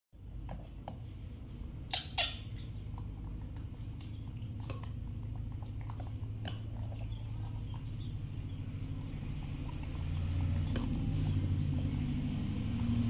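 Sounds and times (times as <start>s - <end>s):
steady low hum: 0.2s - 13.0s.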